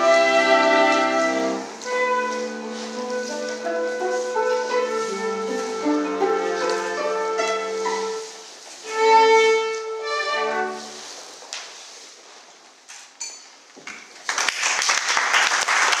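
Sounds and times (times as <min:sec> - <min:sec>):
tango orchestra with strings: 0:00.0 - 0:11.2
dense applause: 0:14.2 - 0:16.0.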